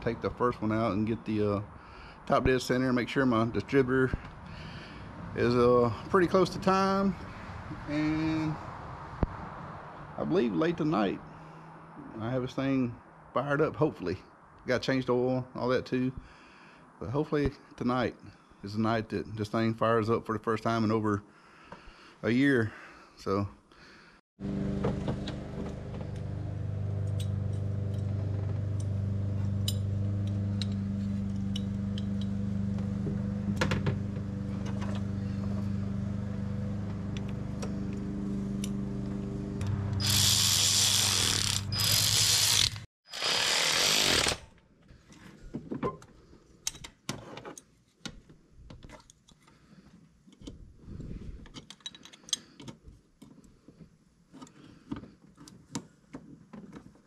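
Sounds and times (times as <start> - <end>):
motor tool humming: 24.4 - 44.4.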